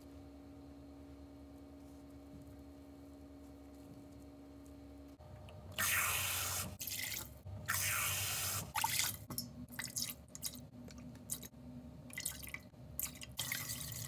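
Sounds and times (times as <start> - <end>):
liquid trickling into a pot: 12.1 - 14.0.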